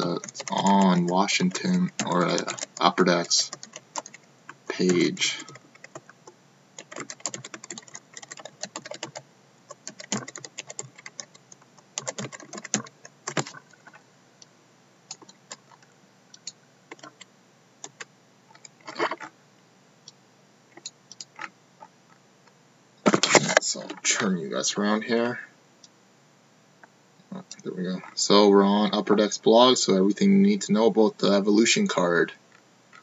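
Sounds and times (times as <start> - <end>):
keyboard typing: 0.0 - 14.0, 15.1 - 19.3, 20.7 - 21.5.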